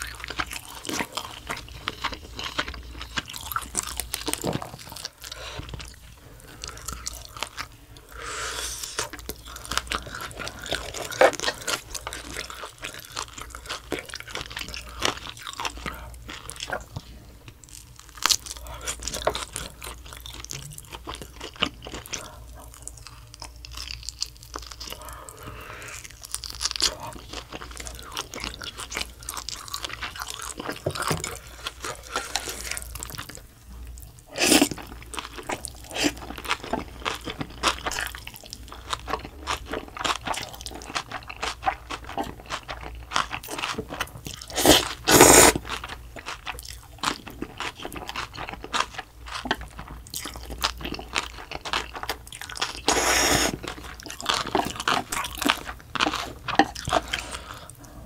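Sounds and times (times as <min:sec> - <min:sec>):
crunching and chewing food: 0:00.0 - 0:58.0
slurping noodles: 0:44.4 - 0:45.7, 0:52.8 - 0:53.7.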